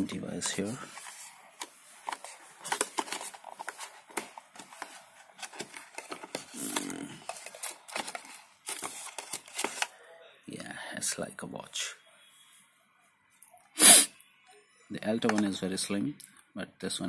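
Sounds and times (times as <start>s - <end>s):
box packaging clicks and rustles: 0.0s - 9.9s
plastic wrap crinkling: 0.4s - 9.9s.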